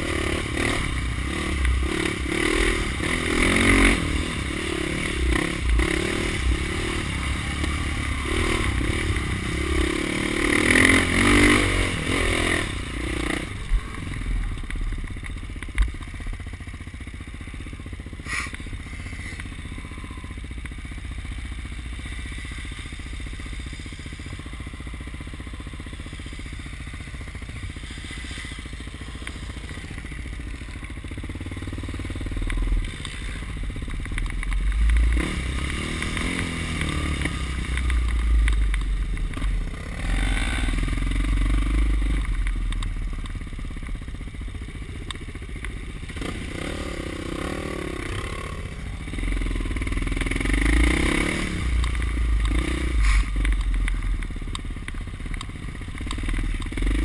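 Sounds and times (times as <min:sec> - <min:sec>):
dirt bike engine revving: 0:00.0 - 0:15.0, 0:34.5 - 0:42.5, 0:45.0 - 0:57.0
clatter and scraping: 0:50.6 - 0:57.0.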